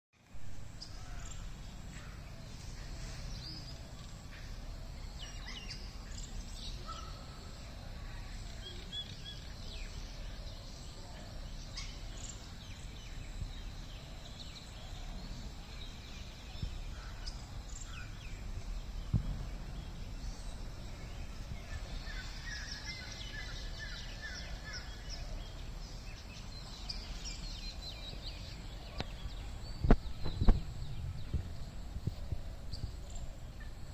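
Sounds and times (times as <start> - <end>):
small birds chirping: 0.3 - 33.9
low rumble: 18.1 - 22.6.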